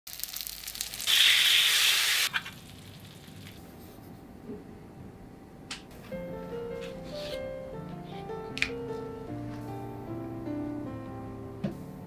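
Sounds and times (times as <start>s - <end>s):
fish sizzling in hot oil: 0.1s - 3.6s.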